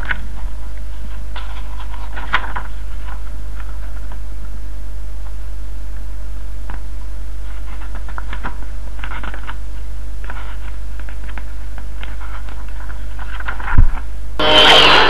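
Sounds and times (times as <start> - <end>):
magazine pages rustling: 0.0 - 4.2, 7.4 - 13.8
low electrical hum: 0.0 - 15.0.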